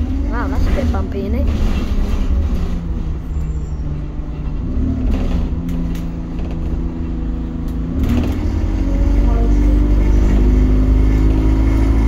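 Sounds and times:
bus body rattling: 0:00.0 - 0:08.6
bus engine drone: 0:00.0 - 0:12.0
low road rumble: 0:00.0 - 0:12.0.

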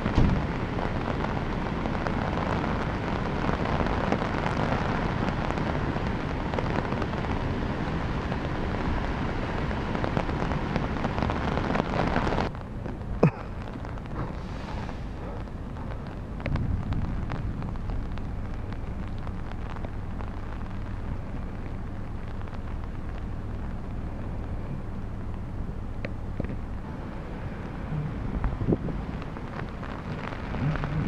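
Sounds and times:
heavy rain hissing: 0:00.0 - 0:31.0.

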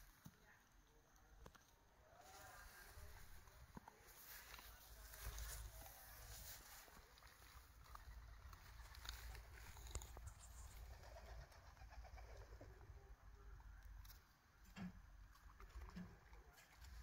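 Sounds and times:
pigeon cooing: 0:07.9 - 0:13.2.

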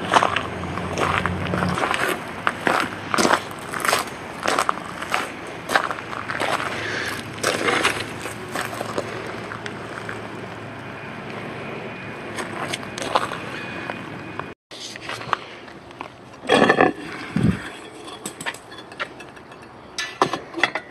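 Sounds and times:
footsteps on gravel and grass: 0:00.0 - 0:10.6, 0:12.3 - 0:14.0, 0:14.8 - 0:16.2
outdoor background noise: 0:00.0 - 0:20.9.

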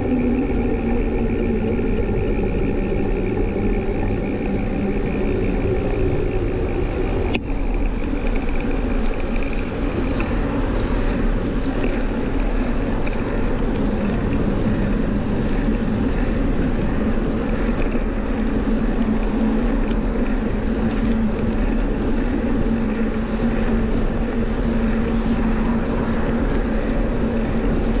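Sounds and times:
low hum: 0:00.0 - 0:28.0
rolling noise: 0:00.0 - 0:28.0
wind rushing on microphone: 0:00.0 - 0:28.0.

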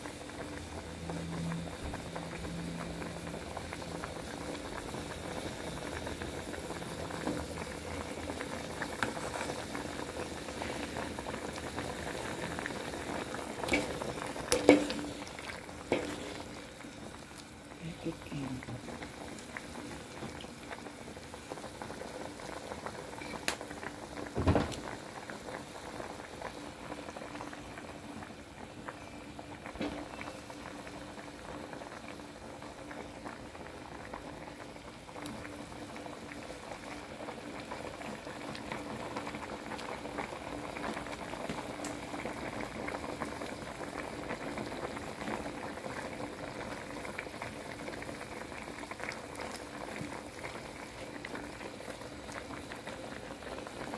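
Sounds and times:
curry bubbling in a pot: 0:00.0 - 0:53.9
metal ladle stirring: 0:15.9 - 0:16.4.

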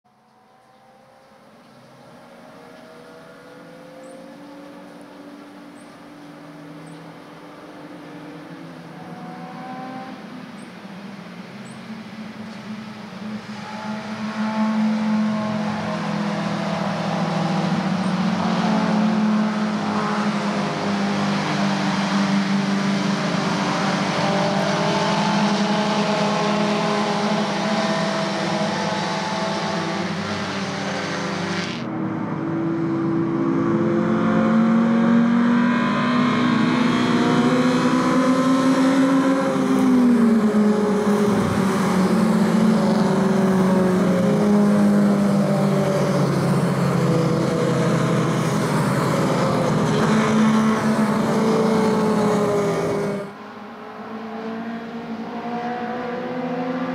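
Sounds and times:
racing car engines: 0:00.1 - 0:56.9.

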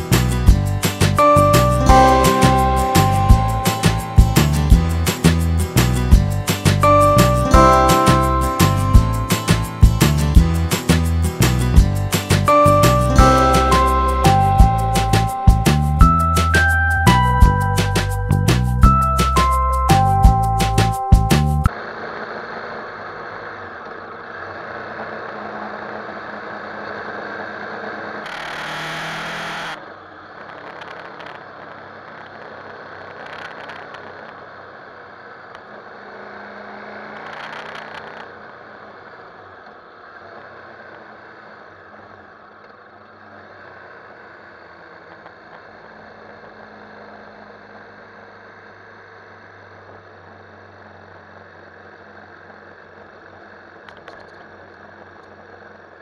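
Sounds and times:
wind and road noise: 0:00.0 - 0:02.0, 0:08.4 - 0:13.2
motorcycle engine running: 0:00.0 - 0:21.7, 0:27.8 - 0:29.8.

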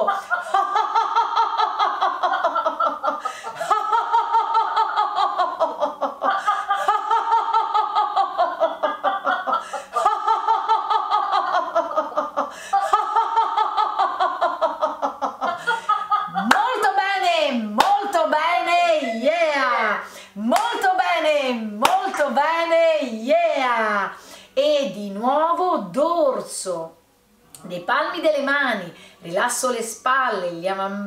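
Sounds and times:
woman laughing in pulses: 0:00.0 - 0:16.8
woman breathing: 0:03.1 - 0:03.9, 0:06.3 - 0:07.0, 0:09.5 - 0:10.2, 0:12.4 - 0:13.1, 0:15.5 - 0:16.1, 0:20.0 - 0:20.4, 0:24.2 - 0:24.6, 0:29.0 - 0:29.2.

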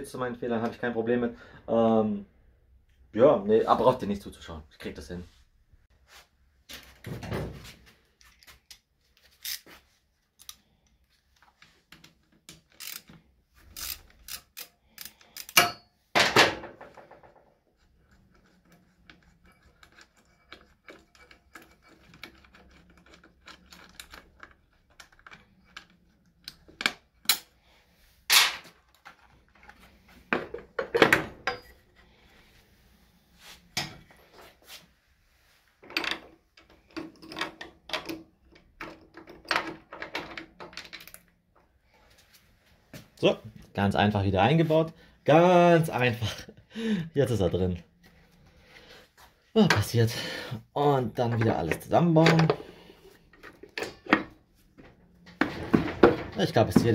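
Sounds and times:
metal parts clinking: 0:12.6 - 0:13.1.

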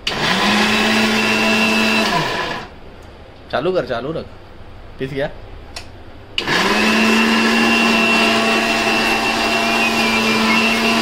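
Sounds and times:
mixer grinder running: 0:00.0 - 0:02.7, 0:06.4 - 0:11.0.

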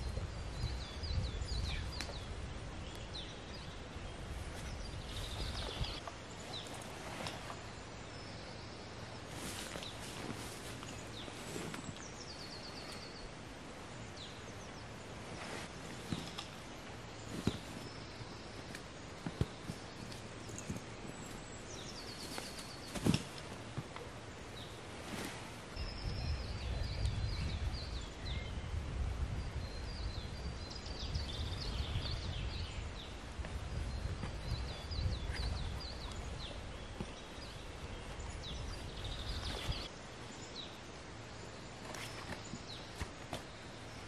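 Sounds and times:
small birds chirping: 0:00.0 - 0:44.0
rustling over dry leaves: 0:04.0 - 0:25.8.

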